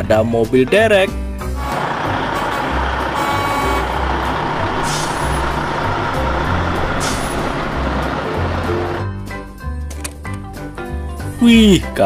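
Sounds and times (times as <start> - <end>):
diesel truck engine driving past: 1.5 - 9.2
short air hisses: 4.6 - 5.8, 6.8 - 7.7.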